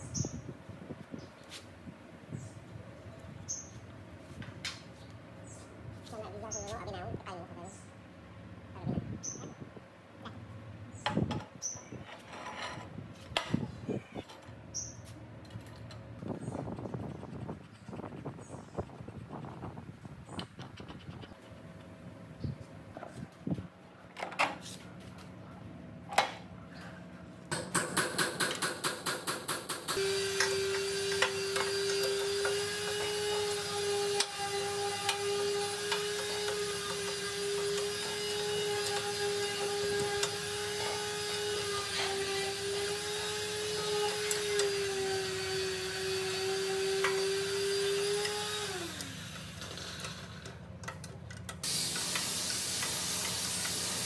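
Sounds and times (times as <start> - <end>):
electric motor whining: 30.0 - 50.3.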